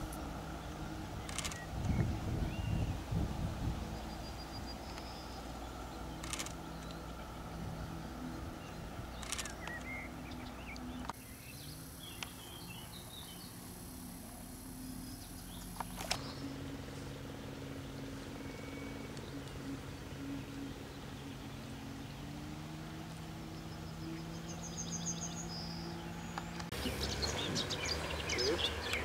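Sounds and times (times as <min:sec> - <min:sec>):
low steady hum: 0:00.0 - 0:29.0
bird chirps: 0:03.9 - 0:13.7, 0:23.0 - 0:29.0.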